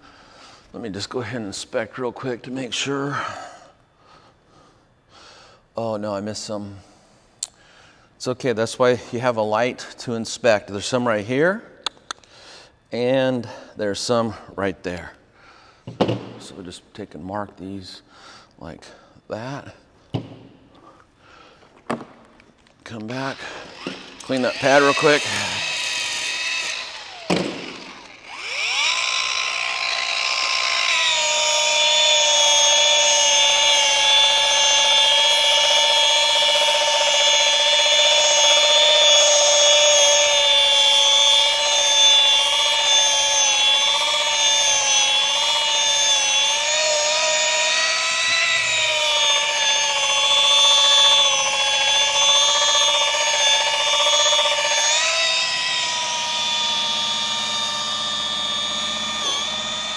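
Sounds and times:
rotary polisher motor whine: 0:22.9 - 0:59.9.

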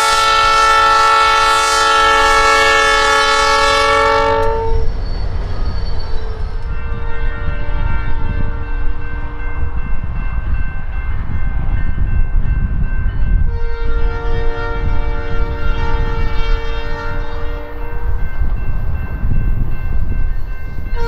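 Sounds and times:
locomotive air horn chord: 0:00.0 - 0:05.0, 0:06.7 - 0:09.6, 0:13.5 - 0:18.1.

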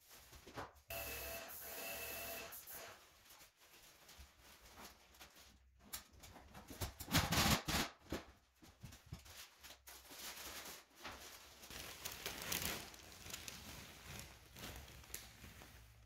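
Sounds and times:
paper and tape peeling off wall: 0:09.2 - 0:16.0.

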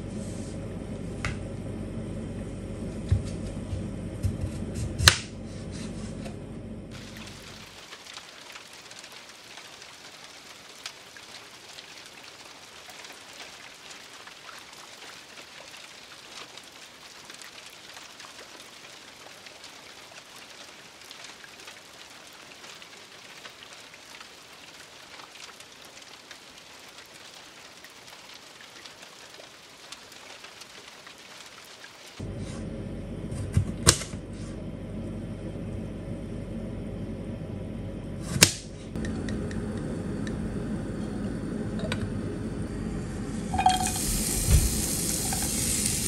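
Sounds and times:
water drops pattering: 0:43.5 - 0:46.0.

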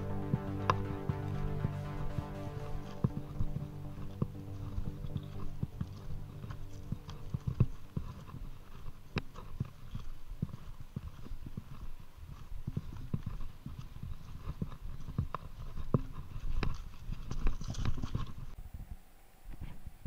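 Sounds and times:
bike tyres rumbling on gravel: 0:03.0 - 0:18.6.

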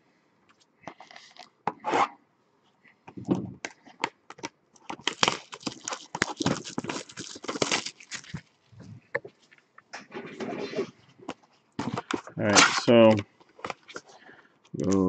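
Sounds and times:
wrapping tearing and crackling: 0:00.9 - 0:01.6, 0:04.4 - 0:08.8.

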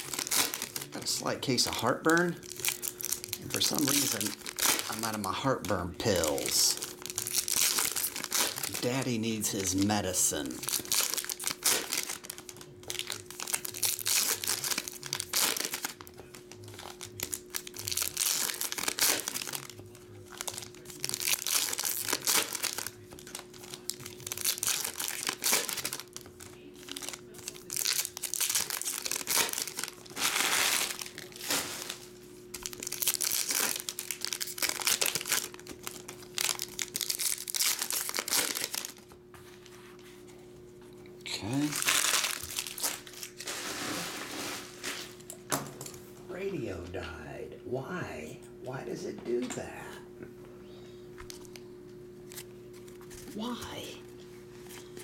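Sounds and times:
faint background music: 0:00.0 - 0:39.0
foil wrappers crinkling: 0:00.0 - 0:40.2, 0:41.4 - 0:45.3, 0:52.2 - 0:53.6.

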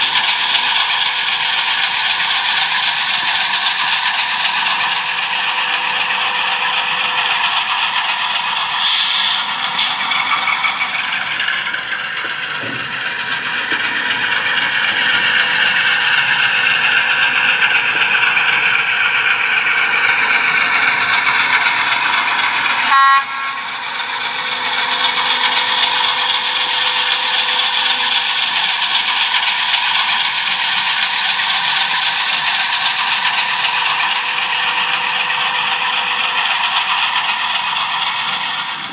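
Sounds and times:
model train wheels clattering: 0:00.0 - 0:38.9
locomotive horn blast: 0:22.8 - 0:24.7.

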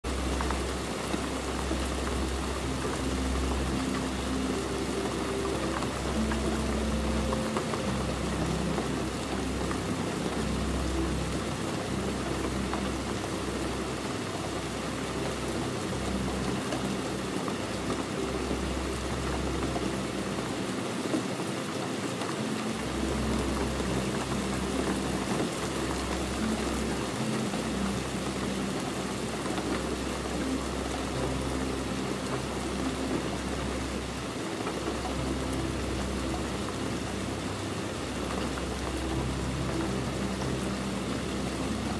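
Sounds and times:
rain pattering on window: 0:00.0 - 0:41.9.

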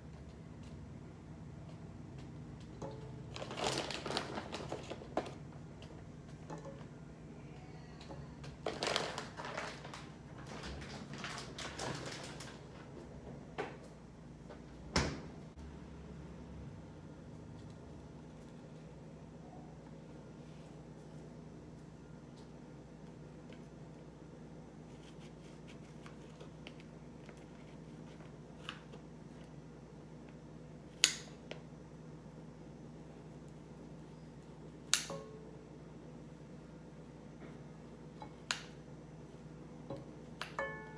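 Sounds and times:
rustling and clatter of items: 0:02.8 - 0:06.9, 0:08.2 - 0:13.8.

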